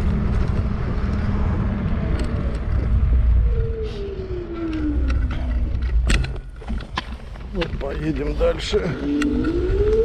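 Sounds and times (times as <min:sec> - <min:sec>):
vehicle rumbling over rough ground: 0:00.0 - 0:10.0
whine falling in pitch: 0:09.0 - 0:10.0.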